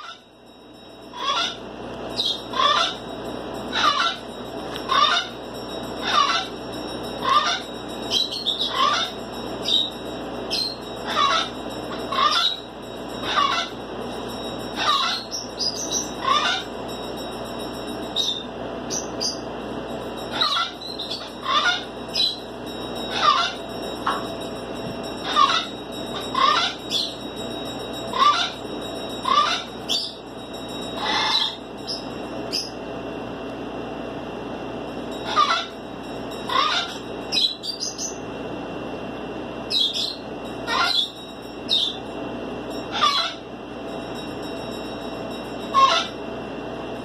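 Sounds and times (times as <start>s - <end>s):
young raccoon chirping: 1.2s - 3.0s, 3.7s - 4.2s, 6.0s - 6.6s, 7.2s - 9.9s, 10.5s - 11.5s, 12.1s - 13.8s, 14.8s - 16.7s, 20.3s - 22.5s, 23.1s - 23.6s, 25.2s - 27.2s, 28.1s - 28.6s, 29.2s - 30.2s, 31.0s - 32.8s, 35.2s - 35.8s, 36.5s - 38.2s, 39.7s - 42.0s, 42.9s - 43.4s, 45.7s - 46.2s.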